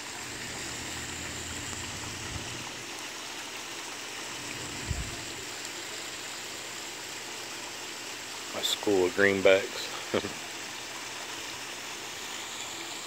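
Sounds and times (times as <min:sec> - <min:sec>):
fountain water splashing: 0:00.0 - 0:13.0
low hum: 0:00.1 - 0:02.8, 0:04.4 - 0:05.5.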